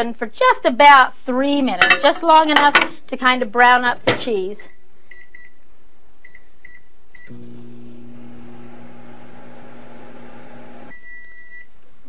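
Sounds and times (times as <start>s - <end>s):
microwave oven humming: 7.3s - 11.0s.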